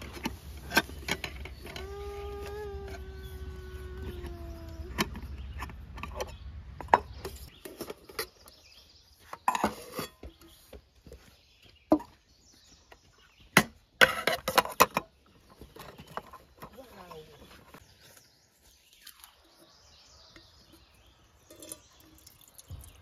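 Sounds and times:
pots and lids clanking: 9.4 - 10.6.

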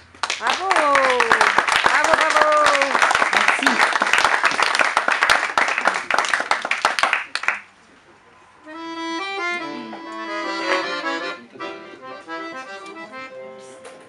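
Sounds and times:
audience clapping: 0.0 - 7.8
accordion melody: 8.6 - 14.0.

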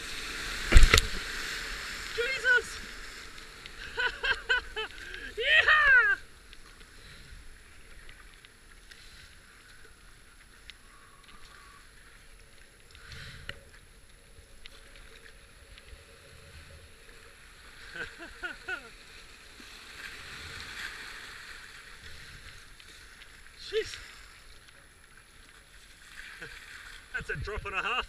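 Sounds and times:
whitewater rushing: 0.0 - 3.0, 5.3 - 6.2
high-pitched cries: 5.4 - 6.2
paddle strokes splashing: 16.8 - 28.0.

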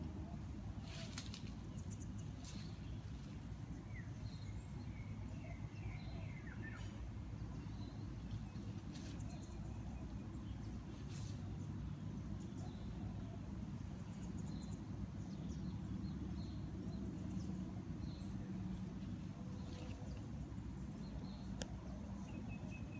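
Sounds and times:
high rustles: 0.8 - 3.5.

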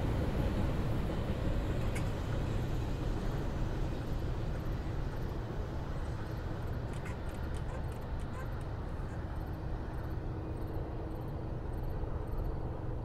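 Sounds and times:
freight train rumbling past: 0.0 - 6.8.

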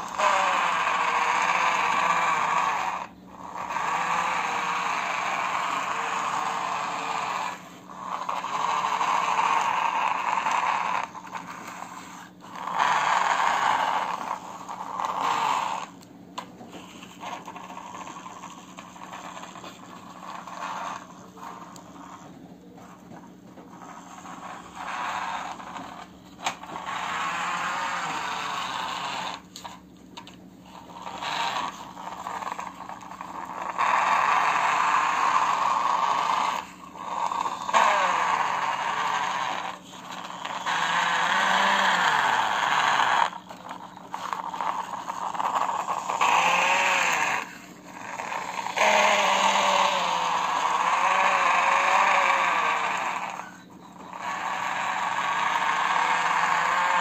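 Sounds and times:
toy excavator tracks whirring: 0.0 - 57.0.

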